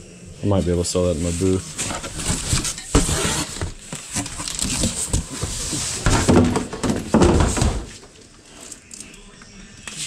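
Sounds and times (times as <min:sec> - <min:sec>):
cardboard boxes rustling: 0:01.2 - 0:08.2
cardboard box scraping and thumping: 0:01.4 - 0:08.0
cardboard flaps squeaking: 0:01.4 - 0:08.1.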